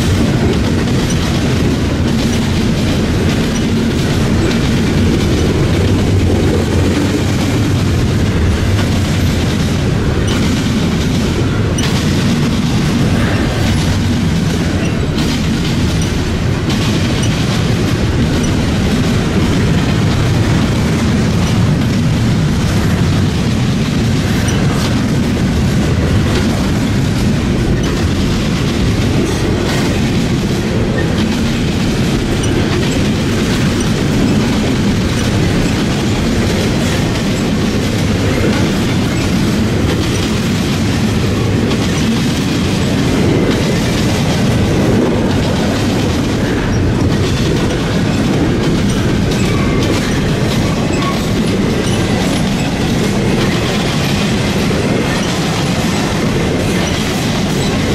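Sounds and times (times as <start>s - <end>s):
train wheels rumbling on rails: 0.0s - 57.9s.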